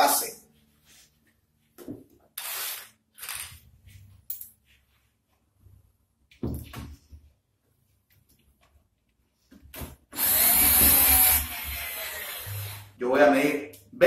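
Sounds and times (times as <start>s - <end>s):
cordless drill driver running: 2.4s - 3.5s, 10.2s - 12.8s.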